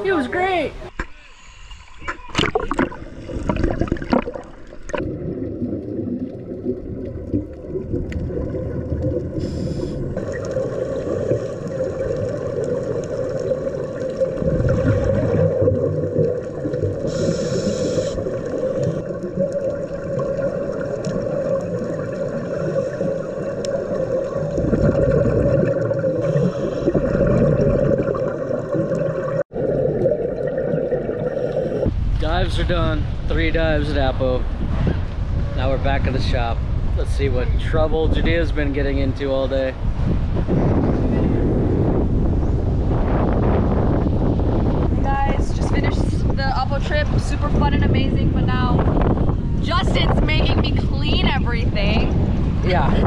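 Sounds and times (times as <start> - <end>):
exhaled regulator bubbles: 1.6 - 32.0
churning bubbles underwater: 2.1 - 33.7, 38.2 - 53.0.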